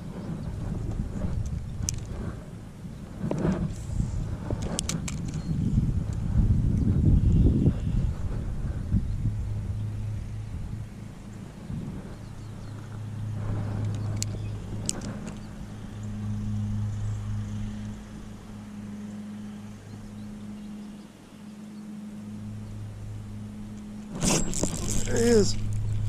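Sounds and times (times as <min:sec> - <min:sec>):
low motor hum: 0:00.0 - 0:26.0.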